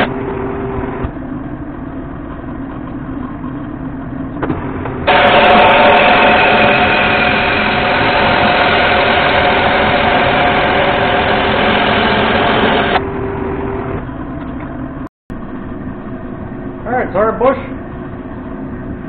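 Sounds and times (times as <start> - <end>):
lathe whining: 5.0 - 14.0
air hose blowing: 5.1 - 13.0.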